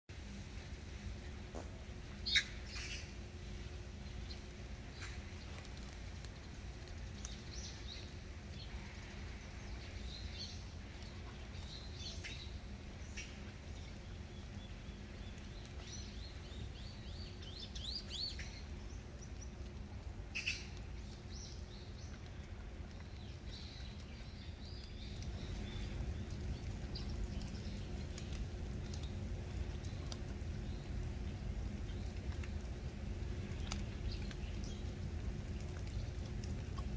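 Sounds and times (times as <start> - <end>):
steady low rumble: 0.1 - 36.9
birds chirping: 20.4 - 36.9.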